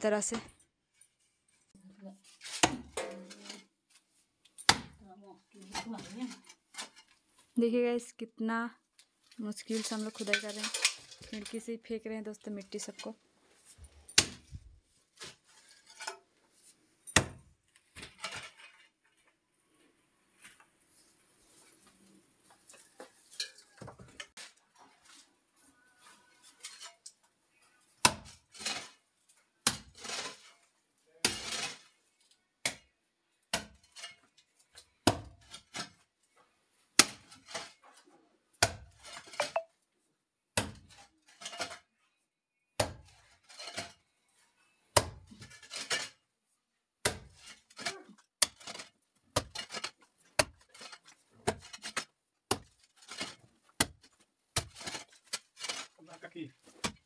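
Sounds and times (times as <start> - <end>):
soil scraping: 9.6 - 11.7, 13.6 - 16.8, 18.0 - 18.9, 28.1 - 29.0, 29.7 - 32.0, 37.0 - 38.1, 38.9 - 39.7, 40.8 - 41.9, 43.0 - 44.3, 45.2 - 46.2, 47.1 - 57.0
hoe striking hard earth: 47.0 - 56.0.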